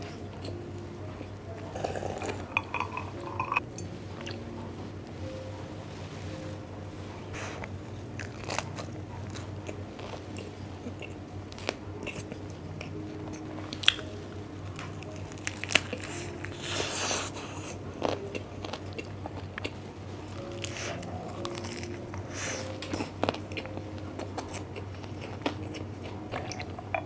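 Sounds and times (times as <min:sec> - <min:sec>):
chewing crisp lettuce: 0:01.2 - 0:03.4, 0:07.4 - 0:27.0.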